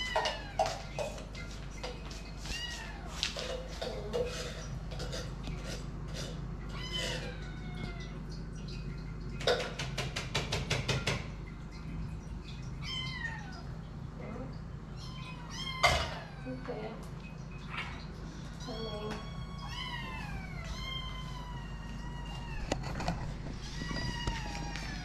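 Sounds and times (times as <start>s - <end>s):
kittens meowing: 6.7s - 8.3s, 12.8s - 13.7s, 14.9s - 16.9s, 18.6s - 25.0s.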